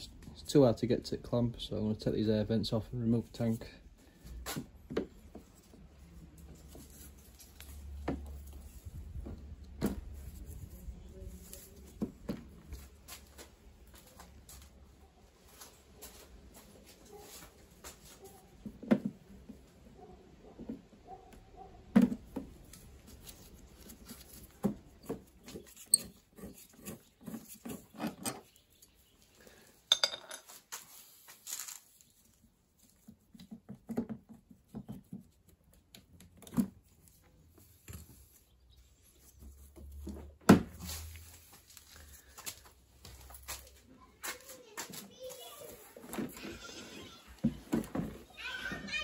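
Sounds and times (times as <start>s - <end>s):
hand tools clicking and knocking: 25.0s - 28.6s.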